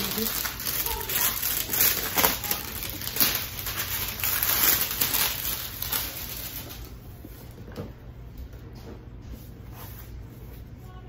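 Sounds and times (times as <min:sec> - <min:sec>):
packaging crinkling: 0:00.0 - 0:07.0.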